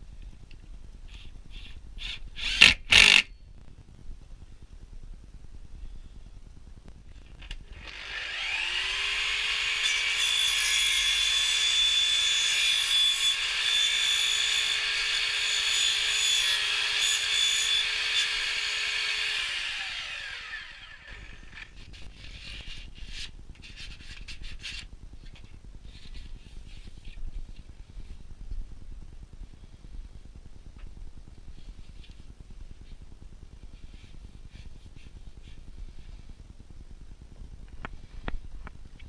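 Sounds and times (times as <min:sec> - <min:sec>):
mitre saw cutting plastic pipe: 0:01.6 - 0:03.3.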